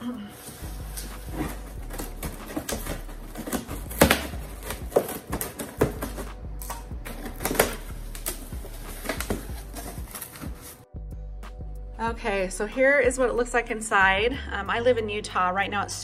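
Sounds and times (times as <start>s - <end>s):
scissors cutting packing tape: 0.5s - 10.8s
cardboard flaps clicking and knocking: 1.2s - 6.3s.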